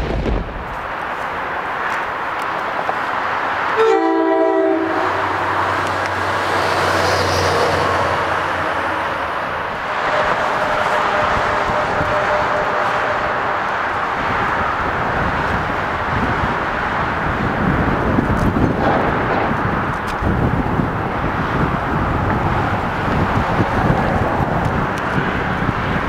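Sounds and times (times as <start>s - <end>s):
steady rushing noise: 0.0s - 26.0s
locomotive air horn: 3.8s - 5.6s, 9.9s - 13.7s.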